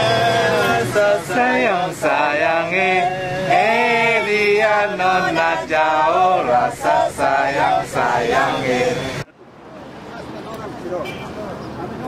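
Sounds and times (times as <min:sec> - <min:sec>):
two men singing: 0:00.0 - 0:09.2.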